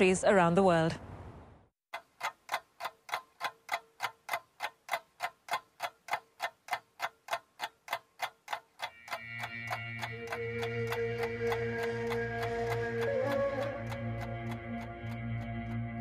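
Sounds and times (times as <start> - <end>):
steady ticking: 1.9 - 16.0
sustained music chords: 8.9 - 16.0.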